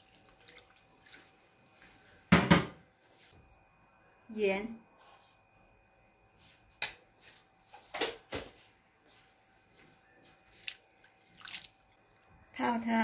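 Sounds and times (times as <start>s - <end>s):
hand stirring in water: 0.0s - 2.0s, 10.3s - 12.4s
short water splashes: 10.4s - 11.9s.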